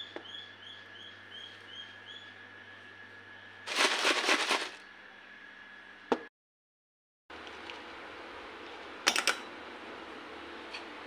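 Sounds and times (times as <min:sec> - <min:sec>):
bird chirping: 0:00.0 - 0:02.4
snack mixture rattling in plastic jar: 0:03.7 - 0:04.8.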